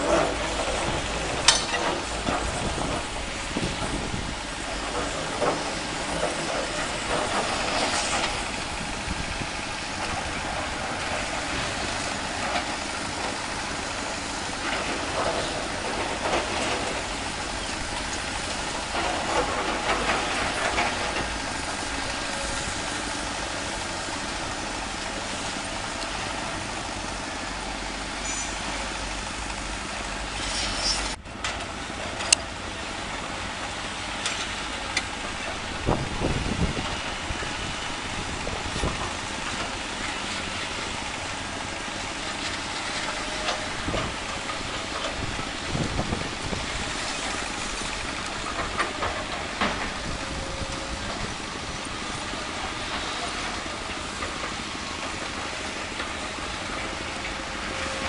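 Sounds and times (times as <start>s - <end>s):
rattles and knocks of rock: 0.0s - 22.5s
heavy diesel machinery running: 0.0s - 58.0s.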